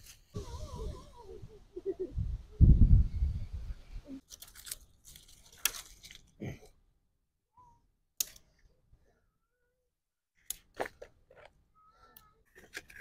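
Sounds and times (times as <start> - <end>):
crackling rustles: 4.2 - 6.4.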